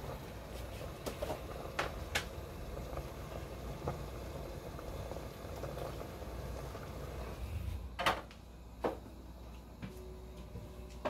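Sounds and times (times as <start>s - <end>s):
broth boiling in a pot: 0.0s - 11.0s
low hum: 7.0s - 11.0s.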